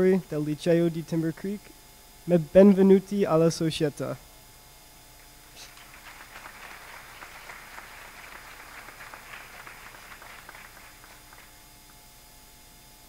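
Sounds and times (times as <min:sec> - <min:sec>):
audience applauding: 0:05.7 - 0:11.6.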